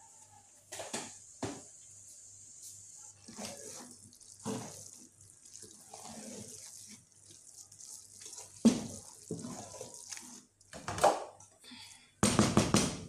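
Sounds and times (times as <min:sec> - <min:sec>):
wooden spoon scraping metal pot: 0:03.3 - 0:10.5.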